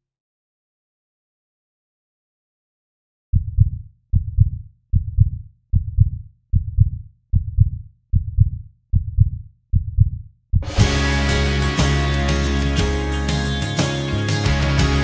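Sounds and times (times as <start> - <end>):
heartbeat: 3.4 - 10.8.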